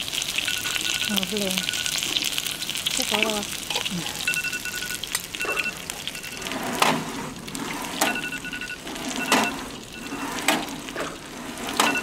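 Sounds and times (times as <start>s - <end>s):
drawer rolling on metal rails: 6.4s - 12.0s.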